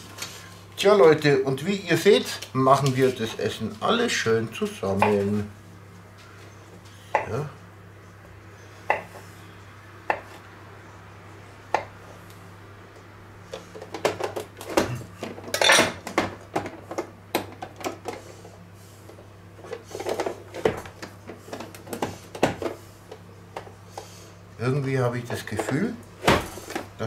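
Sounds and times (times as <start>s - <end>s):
kitchen utensils clattering: 14.0s - 16.8s.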